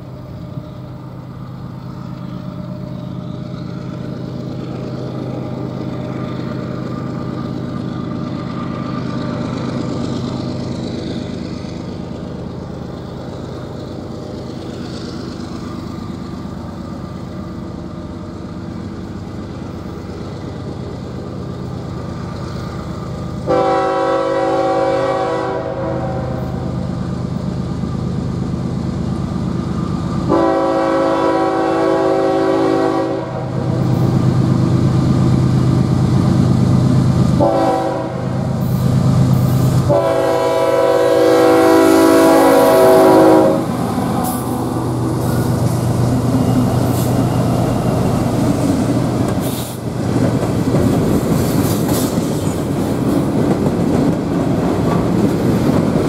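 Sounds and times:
locomotive engine rumble: 0.0 - 56.0
locomotive horn blasts: 23.4 - 26.6, 30.3 - 33.7, 37.4 - 38.4, 39.8 - 43.8.

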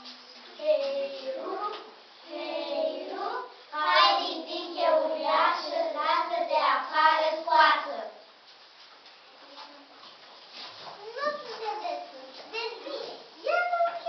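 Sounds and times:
voices singing rhythmically: 0.7 - 8.2.

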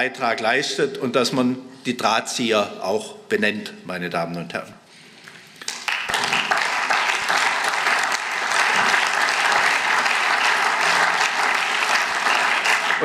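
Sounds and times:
crowd applauding: 5.6 - 13.0.

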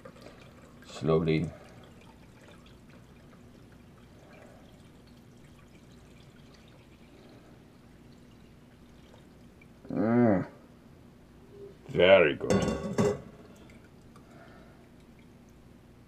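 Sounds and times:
liquid trickling through strainer: 0.0 - 9.9.

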